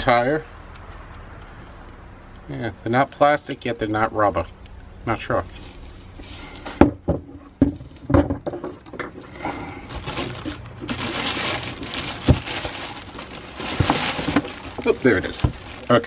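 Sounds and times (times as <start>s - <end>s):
plastic bag crinkling: 5.4s - 6.7s, 9.2s - 16.0s.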